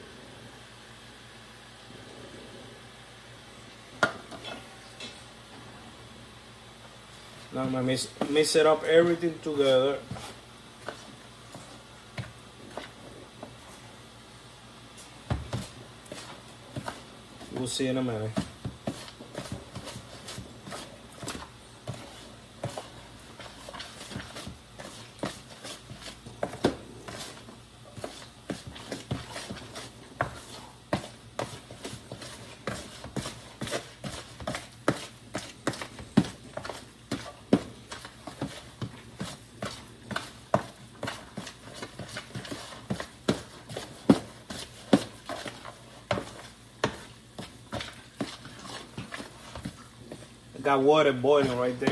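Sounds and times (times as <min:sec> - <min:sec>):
wet food squishing: 0:14.9 - 0:51.9.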